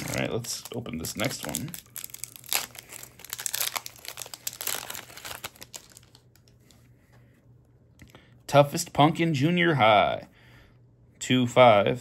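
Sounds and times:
wrapper crinkling and tearing: 0.0s - 6.6s.

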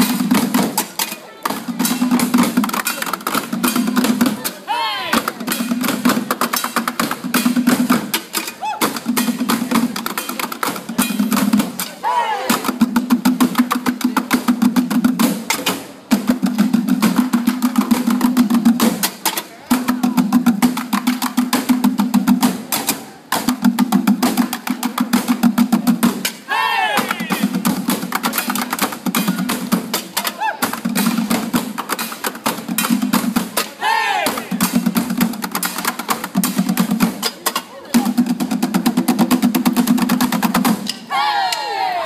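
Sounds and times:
barrel drums in fast rhythm: 0.0s - 41.1s
performers shouting: 4.6s - 5.2s, 12.0s - 12.7s, 26.5s - 27.6s, 33.8s - 34.6s, 41.0s - 42.0s.

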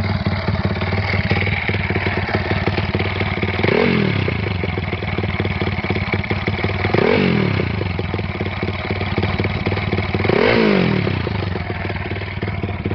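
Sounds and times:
minibike engine idling: 0.0s - 12.9s.

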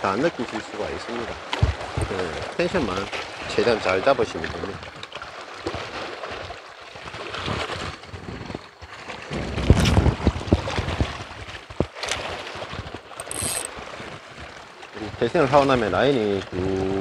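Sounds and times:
small waves lapping: 0.0s - 17.0s
wind on microphone: 7.0s - 15.4s.

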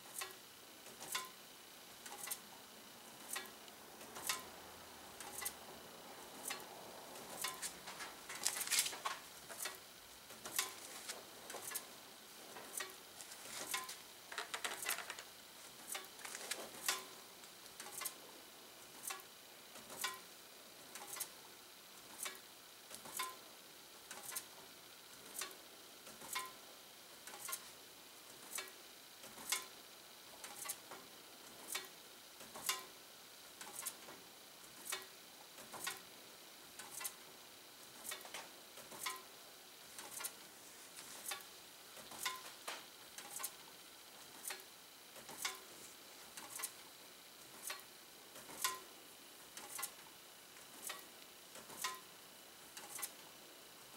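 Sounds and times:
fan blades ticking against foil: 3.2s - 4.5s, 7.3s - 11.9s, 12.5s - 18.2s, 46.3s - 46.8s, 47.4s - 48.9s, 49.5s - 50.0s, 50.8s - 52.0s.

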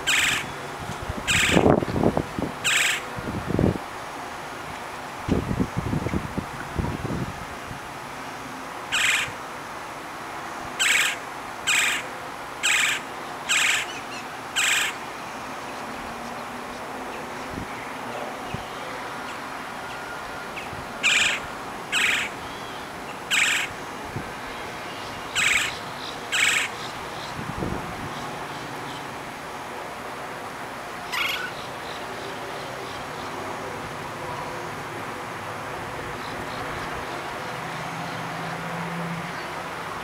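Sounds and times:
woodpecker calls: 0.0s - 0.6s, 1.3s - 1.7s, 2.6s - 3.0s, 8.9s - 9.4s, 10.8s - 15.0s, 19.2s - 23.8s, 24.9s - 27.3s, 31.1s - 33.4s.

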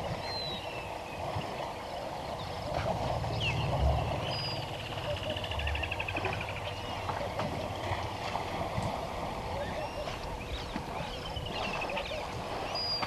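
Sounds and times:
water sloshing and splashing: 0.0s - 13.0s
low rumble: 2.4s - 9.3s.

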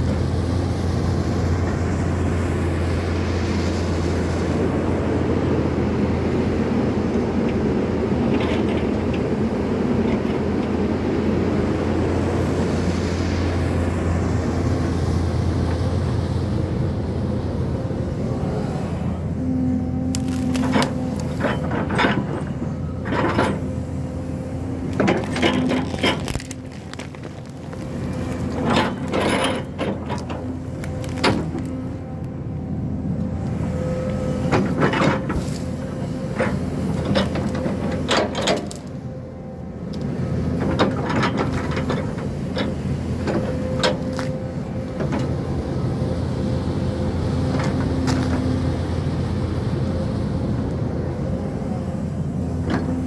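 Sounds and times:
excavator diesel engine running: 0.0s - 53.0s
cracking and knocking of brush: 20.1s - 22.0s, 24.9s - 31.8s, 47.6s - 48.4s.

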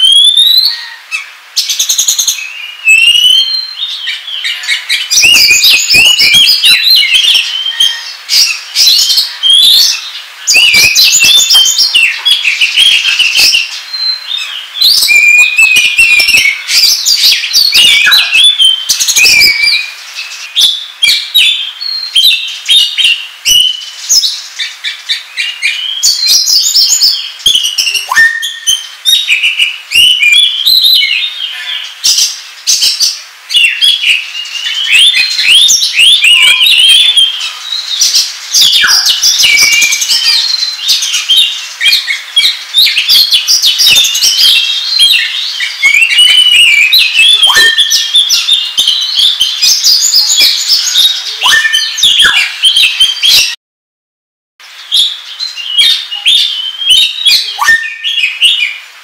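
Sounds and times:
bird singing: 0.0s - 53.6s, 54.8s - 58.9s
long downward whistles: 57.5s - 58.0s.

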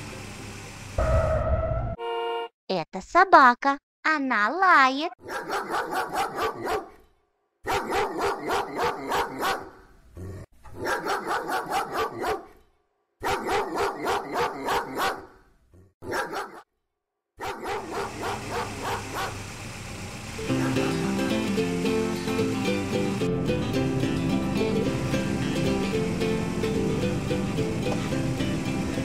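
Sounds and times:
dog barking: 5.2s - 9.9s, 10.7s - 12.6s, 13.2s - 15.4s, 16.0s - 16.7s, 17.4s - 19.4s, 20.5s - 21.0s.

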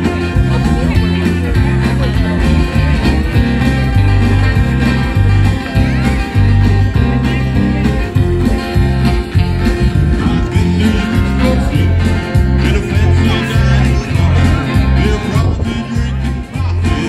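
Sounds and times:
acoustic guitar through speaker: 0.0s - 17.0s
strong bass notes: 0.0s - 17.0s
person singing: 9.7s - 17.0s.

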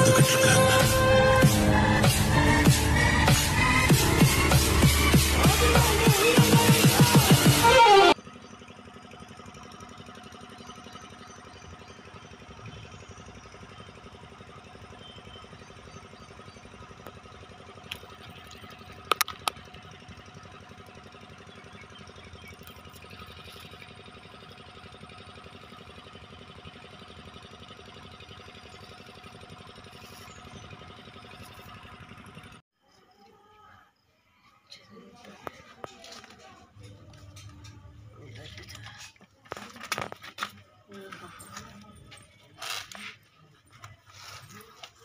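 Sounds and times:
small motor humming: 0.0s - 32.6s.

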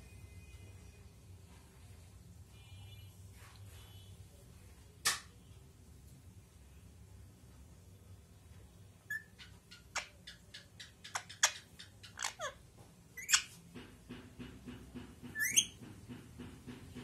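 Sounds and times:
parakeet clicking and chirping: 9.1s - 12.6s, 13.2s - 13.6s, 15.3s - 15.8s
shrill parakeet calls: 9.1s - 12.6s, 13.2s - 13.5s.

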